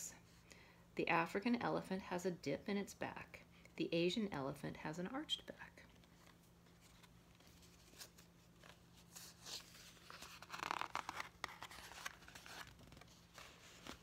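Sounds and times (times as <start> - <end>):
paper page rustling: 6.0 - 14.0.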